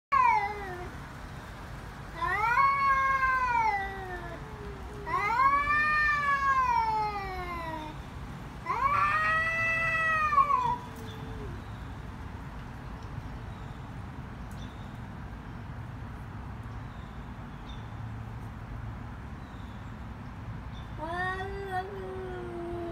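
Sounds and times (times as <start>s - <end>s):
cats yowling: 0.1s - 0.9s, 2.2s - 8.0s, 8.6s - 11.7s.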